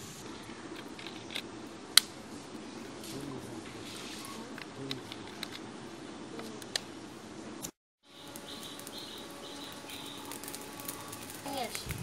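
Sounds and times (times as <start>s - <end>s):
bird chirping: 8.0s - 11.2s.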